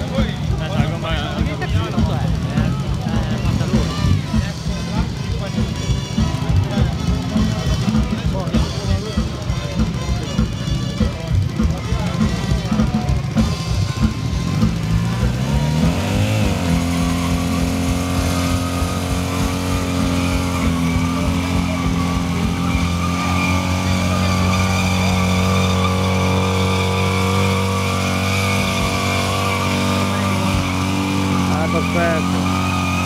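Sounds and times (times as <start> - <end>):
motorcycle engine revving: 0.0 - 33.0
tyre spinning on asphalt: 13.4 - 33.0.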